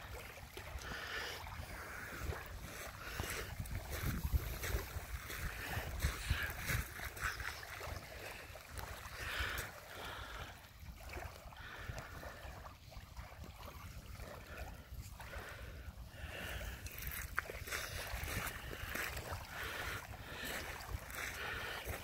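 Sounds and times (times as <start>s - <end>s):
waves lapping on pebbles: 0.0s - 22.0s
wind buffeting microphone: 1.5s - 9.1s, 14.9s - 22.0s.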